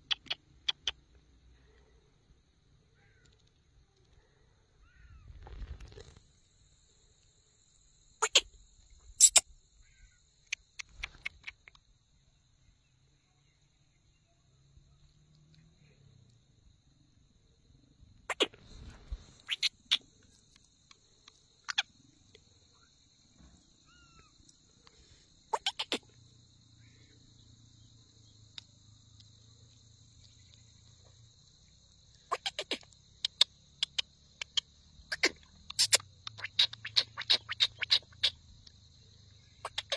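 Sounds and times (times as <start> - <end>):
faint bird chirp: 0.0 - 6.2, 8.2 - 16.5, 18.2 - 39.9
insects chirring: 0.0 - 39.9.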